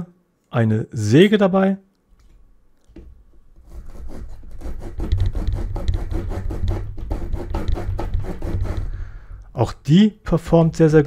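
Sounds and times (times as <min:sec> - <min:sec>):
saw cutting wooden branch: 0:03.7 - 0:09.0.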